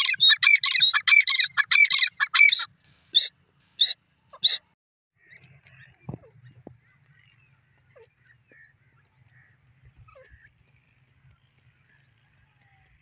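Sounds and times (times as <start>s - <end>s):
bird calling high-pitched notes: 0.0s - 4.6s.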